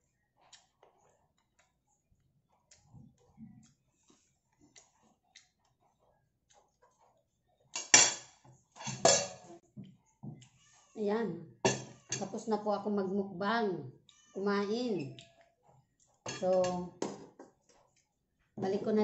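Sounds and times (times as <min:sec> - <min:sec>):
eating clicks and smacks: 0:00.4 - 0:03.8, 0:04.6 - 0:06.9.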